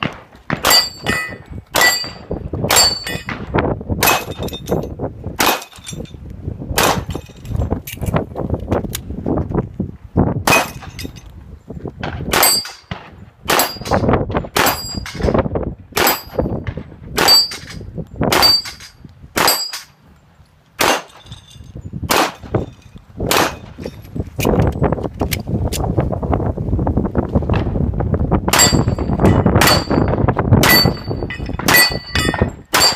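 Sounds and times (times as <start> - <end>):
steel target ringing: 0.6 - 3.3, 28.6 - 32.9
handgun shots: 20.8 - 21.2.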